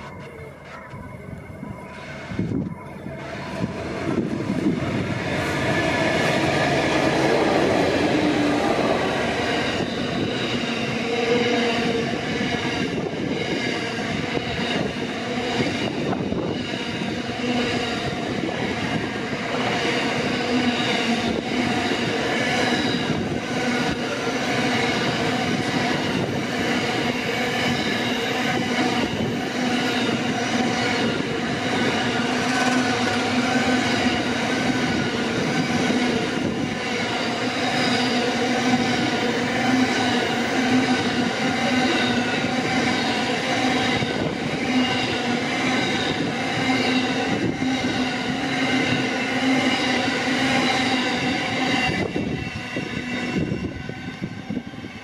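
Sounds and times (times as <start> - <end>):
steady ringing tone: 0.0 - 5.2
train wheels clattering on rails: 0.0 - 53.5.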